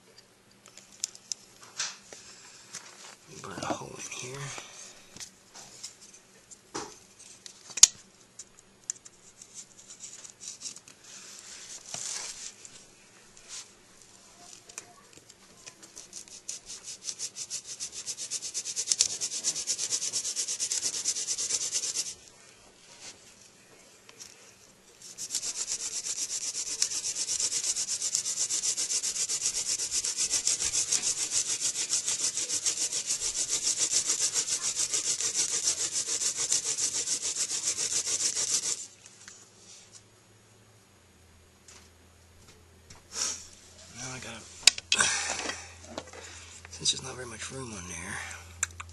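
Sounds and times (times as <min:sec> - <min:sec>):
hand drill rubbing in hearth: 0:15.8 - 0:22.2, 0:25.0 - 0:38.9.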